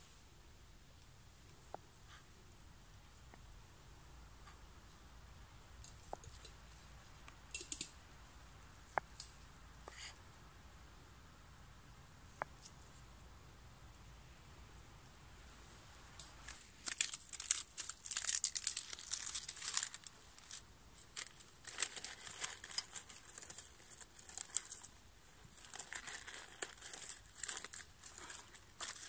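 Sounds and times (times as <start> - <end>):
stuff sack rustling and crinkling: 16.4 - 29.0.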